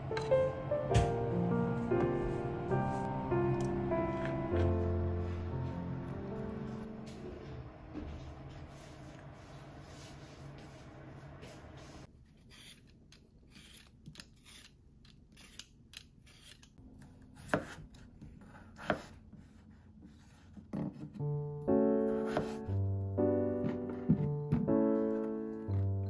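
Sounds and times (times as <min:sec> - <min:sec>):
piano music: 0:00.0 - 0:10.8, 0:21.1 - 0:26.0.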